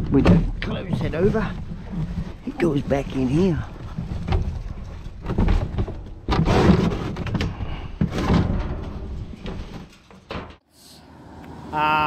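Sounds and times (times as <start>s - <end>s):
metal enclosure clanking: 2.6s - 10.6s.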